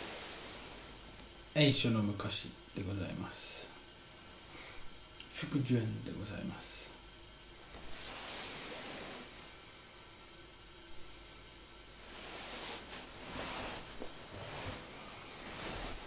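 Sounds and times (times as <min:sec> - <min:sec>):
faint steady hiss: 0:00.0 - 0:16.0
cloth rustling: 0:07.6 - 0:09.6, 0:12.0 - 0:16.0.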